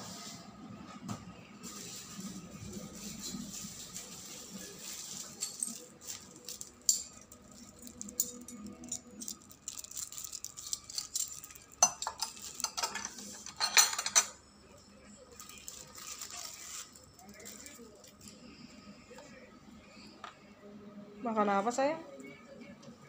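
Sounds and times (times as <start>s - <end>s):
tableware clinking and knocking: 10.6s - 14.4s.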